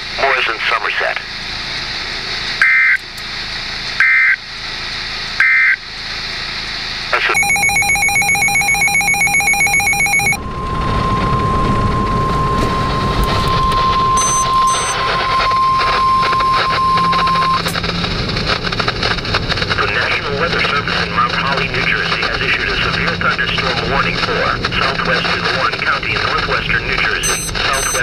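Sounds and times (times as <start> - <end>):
short data bursts: 7.2 - 10.4, 11.3 - 17.8, 20.5 - 28.0
buzzing pulsing alert: 7.3 - 17.8, 27.2 - 28.0
steady warning alarm tone: 7.3 - 17.8, 24.8 - 28.0.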